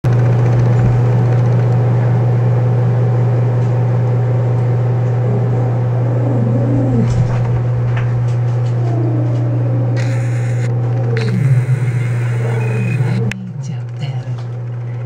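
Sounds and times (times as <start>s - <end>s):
loud steady low hum: 0.0s - 15.0s
wavering tone: 8.6s - 13.7s.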